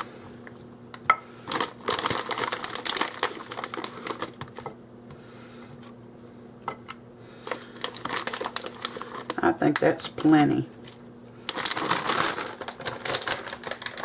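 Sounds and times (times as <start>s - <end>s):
plastic bag crinkling: 1.4s - 4.7s, 7.4s - 9.8s, 10.9s - 14.0s.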